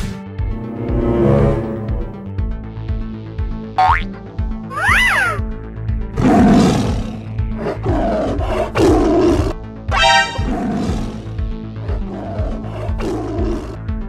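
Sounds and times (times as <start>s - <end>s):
cartoon animal roars: 6.2s - 13.8s.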